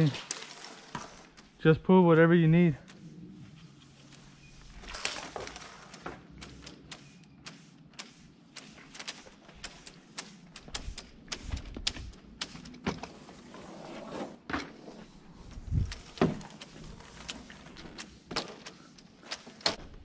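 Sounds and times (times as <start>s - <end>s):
irregular clicks and knocks: 4.1s - 13.2s.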